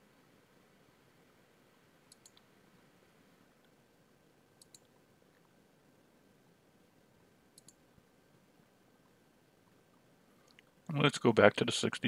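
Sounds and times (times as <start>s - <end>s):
computer mouse clicks: 2.1s - 2.5s, 4.6s - 5.5s, 7.5s - 7.9s.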